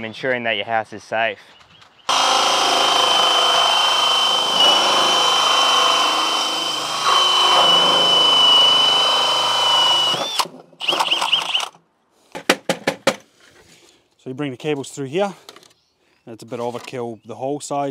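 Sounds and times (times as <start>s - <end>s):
drill hole saw whining through plastic: 2.1s - 11.7s.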